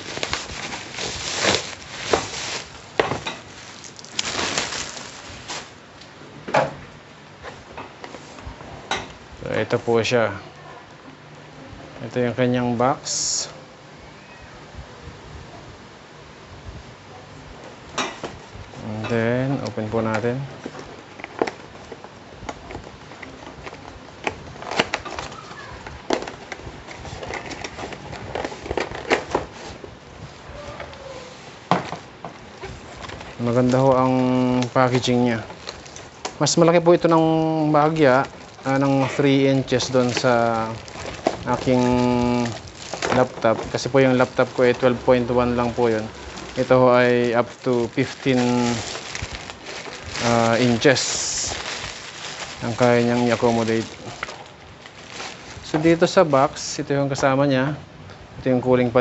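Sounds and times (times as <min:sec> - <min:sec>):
cardboard box being opened: 0:00.0 - 0:05.8, 0:45.6 - 0:55.8
plastic wrapping rustling: 0:00.0 - 0:06.2, 0:18.0 - 0:57.3.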